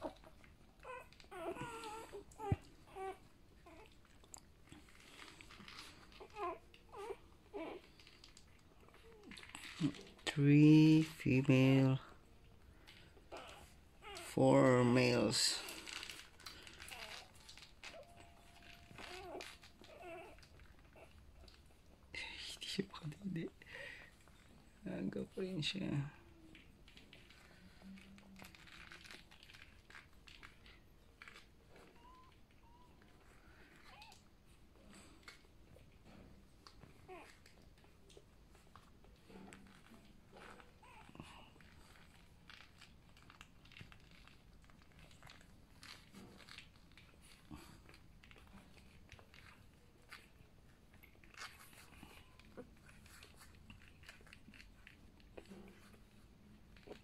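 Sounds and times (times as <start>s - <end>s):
puppy squeaks: 0.0s - 4.0s, 15.7s - 21.6s
puppies suckling clicks: 0.0s - 11.9s, 12.5s - 24.7s, 26.2s - 57.0s.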